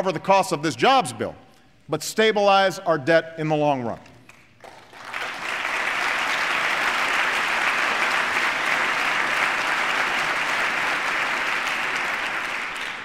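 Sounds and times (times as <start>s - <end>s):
large audience applauding: 4.3s - 13.0s.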